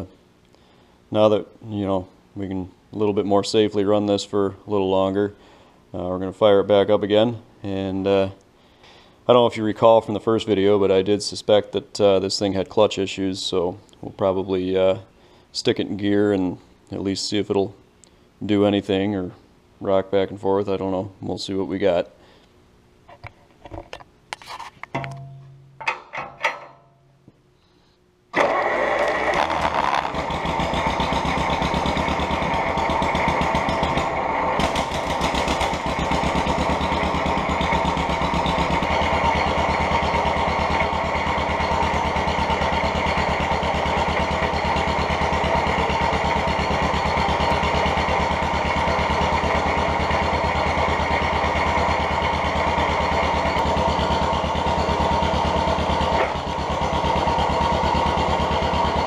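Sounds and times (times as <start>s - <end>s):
engine starting and running: 28.3s - 59.0s.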